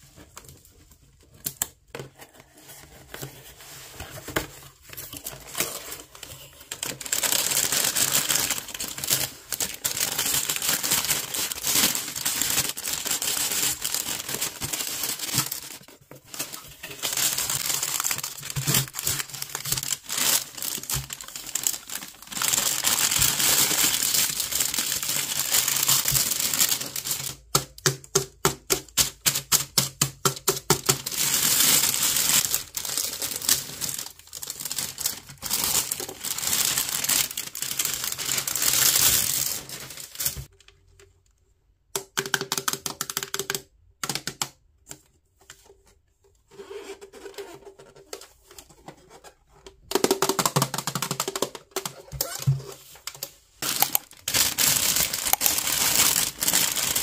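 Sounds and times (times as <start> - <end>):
plastic bags crinkling: 4.8 - 27.6, 30.4 - 40.6, 49.9 - 57.0.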